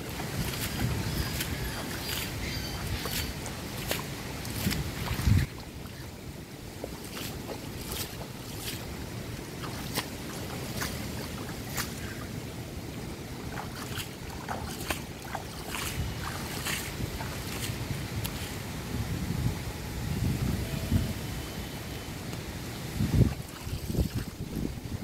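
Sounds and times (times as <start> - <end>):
water lapping at bank: 0.0 - 18.8, 22.6 - 25.0
wind buffeting microphone: 0.0 - 25.0.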